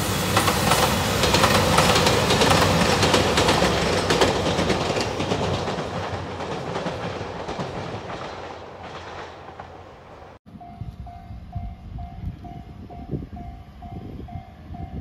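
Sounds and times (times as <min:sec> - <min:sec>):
diesel train passing: 0:00.0 - 0:15.0
wheels clattering over rail joints: 0:00.4 - 0:10.4.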